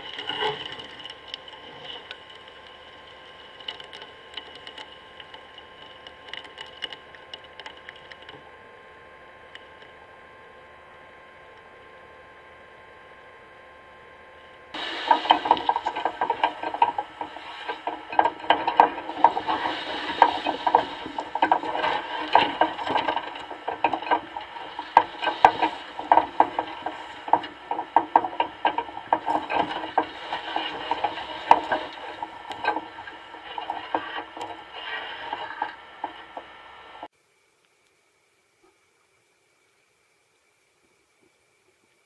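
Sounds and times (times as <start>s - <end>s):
underwater clicking and creaking: 0.0s - 8.5s, 14.7s - 37.1s.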